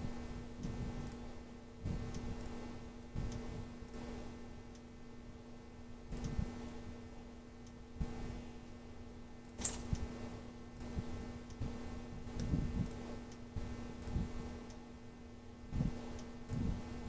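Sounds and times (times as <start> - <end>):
low electrical hum: 0.0 - 17.0
computer mouse clicking: 6.1 - 6.4.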